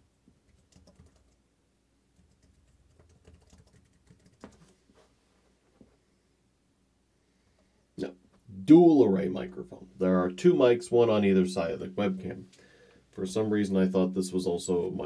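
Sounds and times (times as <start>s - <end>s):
laptop keyboard typing clicks: 0.5s - 1.4s, 2.2s - 4.8s.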